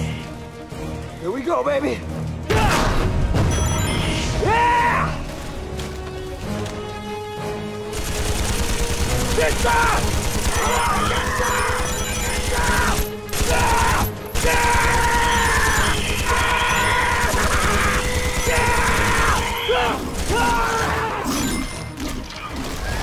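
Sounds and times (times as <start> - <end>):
film score music: 0.0 - 23.0
rapid machine-gun fire: 7.9 - 20.8.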